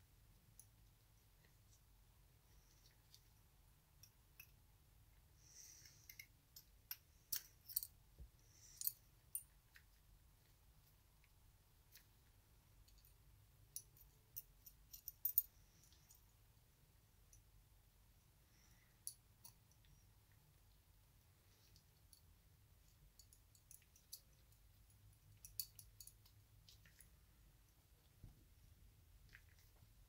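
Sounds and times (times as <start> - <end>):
small steel parts clicking and scraping: 5.6 - 10.0, 12.8 - 16.3, 21.6 - 27.2.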